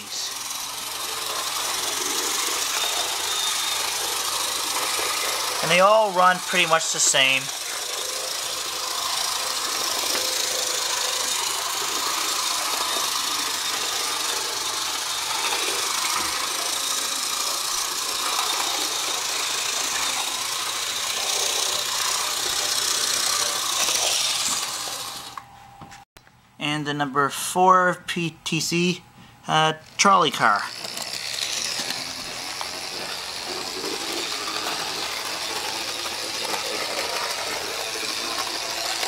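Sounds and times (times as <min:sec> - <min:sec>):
model train rattling on rails: 0:00.0 - 0:25.3, 0:30.7 - 0:39.0
model train motor whirring: 0:00.0 - 0:25.4, 0:30.0 - 0:39.0.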